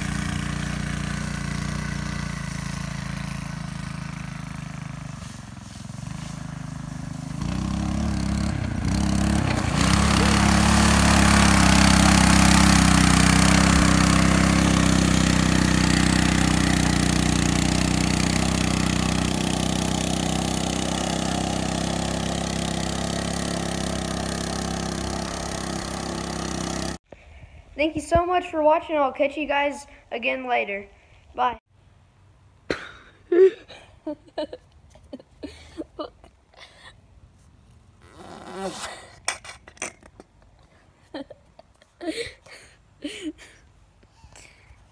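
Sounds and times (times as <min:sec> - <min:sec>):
splashing through mud and water: 0:00.0 - 0:27.0
go-kart engine at hard throttle: 0:00.0 - 0:27.1, 0:38.0 - 0:40.0.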